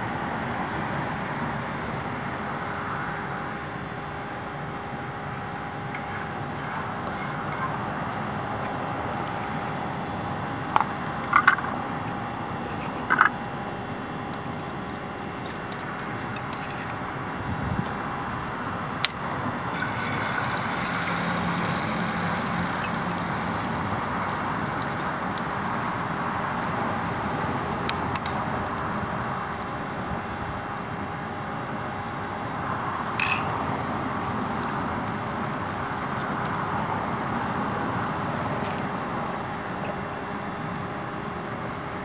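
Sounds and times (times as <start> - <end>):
eggs frying: 14.4 - 38.5
oil sizzling in a frying pan: 18.0 - 41.1.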